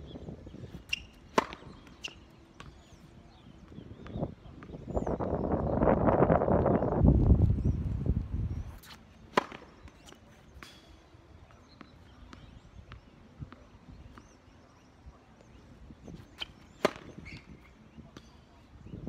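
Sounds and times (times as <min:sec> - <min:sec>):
tennis racket striking ball: 0:01.3 - 0:02.2, 0:16.8 - 0:17.2.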